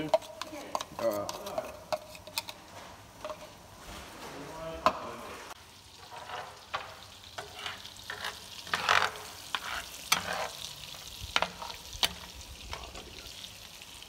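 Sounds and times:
garlic frying in butter: 0.0 - 2.6, 4.9 - 14.0
spatula scraping a pan: 0.0 - 3.7, 5.9 - 13.4.

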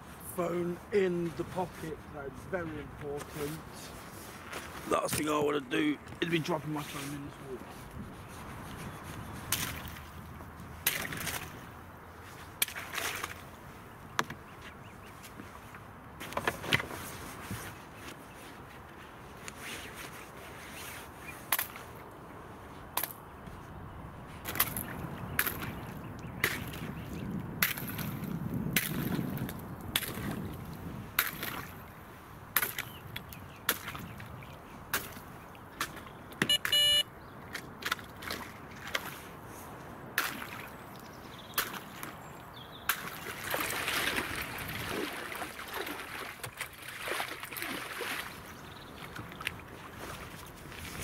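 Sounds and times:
short electronic beep: 36.5 - 37.1
water splashing: 40.2 - 40.8, 42.9 - 51.0.

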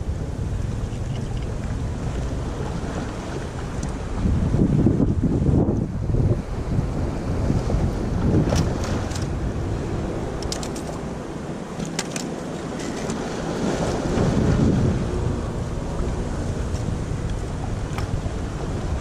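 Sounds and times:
wind buffeting microphone: 0.0 - 19.0
waves splashing on rocks: 6.5 - 19.0.

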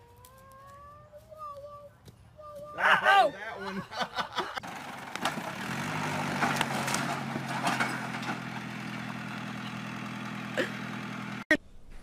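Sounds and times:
tractor engine running: 4.6 - 11.5.

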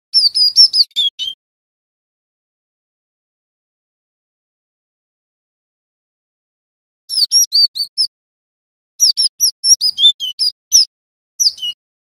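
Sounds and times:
tit calling high chirps: 7.1 - 8.1, 9.0 - 11.8.

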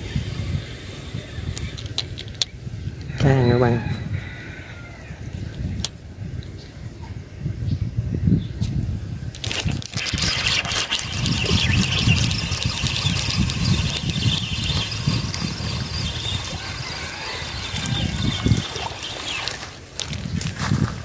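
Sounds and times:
wind noise on microphone: 0.0 - 21.0
fishing reel whirring: 9.4 - 20.3.

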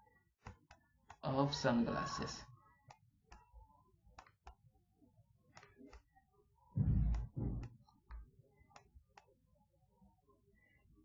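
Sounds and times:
stylus tapping on tablet: 4.1 - 4.7, 6.8 - 9.3
low muffled sound: 6.7 - 7.8.

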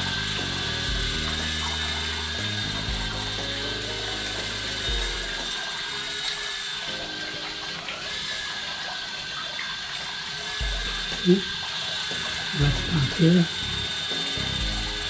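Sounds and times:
drone hovering whine: 0.0 - 9.7, 10.5 - 15.0
low voice-like sounds: 12.6 - 13.5.

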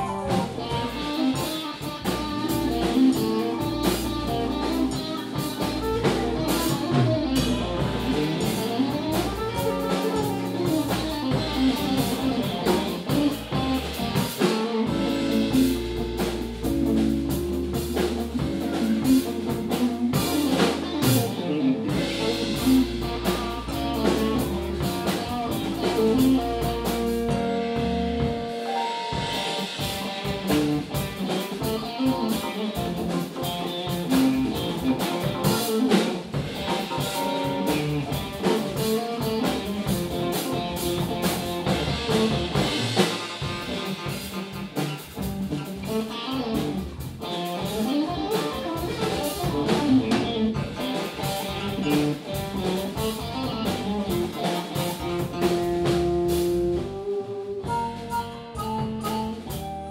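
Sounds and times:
low bass line: 0.0 - 1.2, 2.0 - 14.2, 14.9 - 28.6, 48.8 - 54.4, 55.0 - 59.9
drums and cymbals: 0.0 - 59.9
live band music: 0.0 - 59.9.

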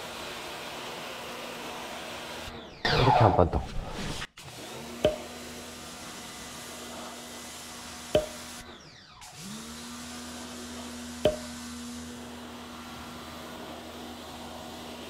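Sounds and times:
electric pump running: 9.2 - 15.0.

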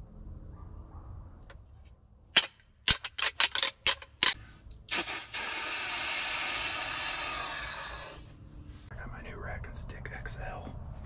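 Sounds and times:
spray hiss: 4.9 - 8.3.

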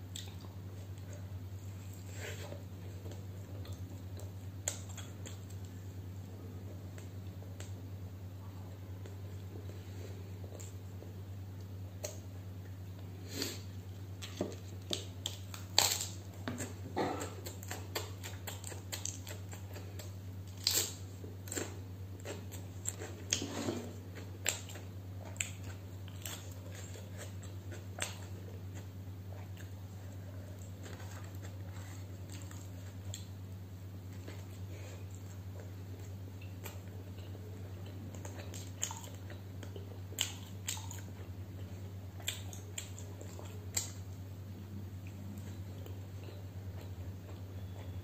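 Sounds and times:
steady low hum: 0.0 - 48.0
wet chewing: 14.2 - 23.4, 34.1 - 44.0.

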